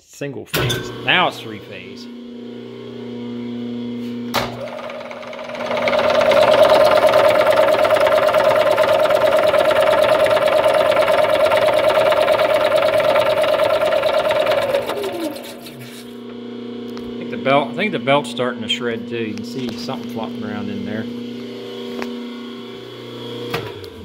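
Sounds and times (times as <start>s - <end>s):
milling machine running: 0.9s - 24.0s
steady machine whine: 0.9s - 24.0s
fast rattling clatter: 4.6s - 15.6s.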